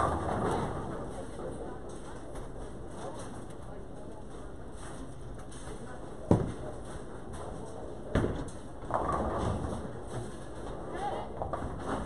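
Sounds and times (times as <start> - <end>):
bowling balls rolling: 0.0 - 1.6, 8.1 - 12.0.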